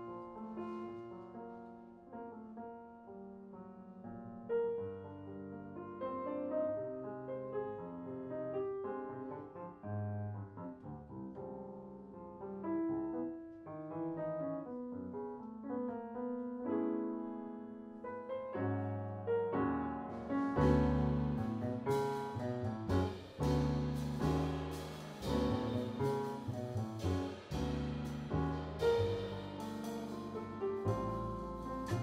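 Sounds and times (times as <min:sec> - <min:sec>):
grand piano jazz chords: 0:00.0 - 0:32.0
cymbals and drums: 0:20.6 - 0:32.0.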